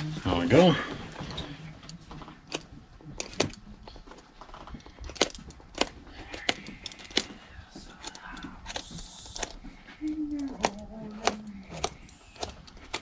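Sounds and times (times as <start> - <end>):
hand tool snapping through stitching: 5.1 - 7.4, 8.0 - 9.6, 10.4 - 13.0.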